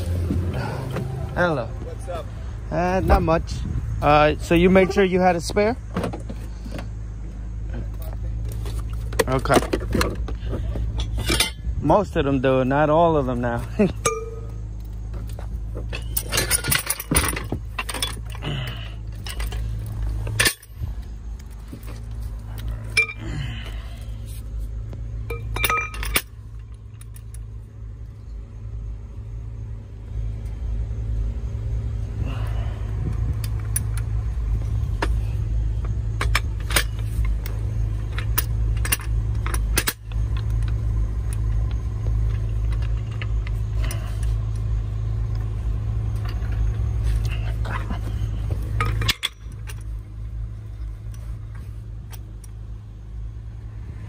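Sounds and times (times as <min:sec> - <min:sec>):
steady low rumble: 0:00.0 - 0:54.0
metal tools clinking and clanking: 0:07.7 - 0:24.5, 0:25.1 - 0:27.7, 0:33.4 - 0:52.6.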